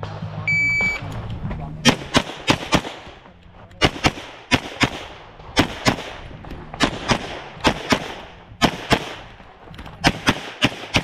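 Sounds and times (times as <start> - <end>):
pistol shots: 1.8 - 3.2, 3.8 - 9.4, 10.0 - 11.0.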